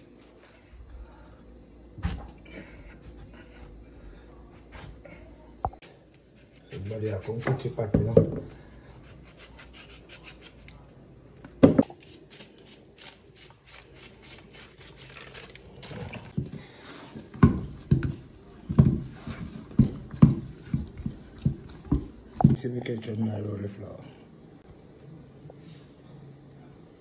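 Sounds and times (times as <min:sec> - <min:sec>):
hands kneading dough: 0:11.9 - 0:22.6.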